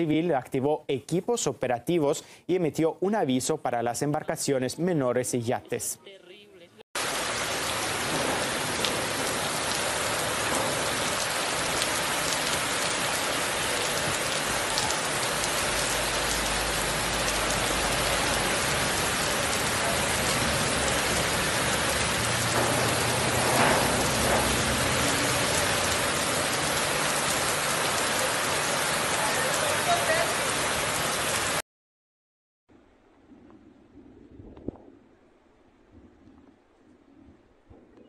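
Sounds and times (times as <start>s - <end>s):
heavy rain pouring: 7.0s - 31.6s.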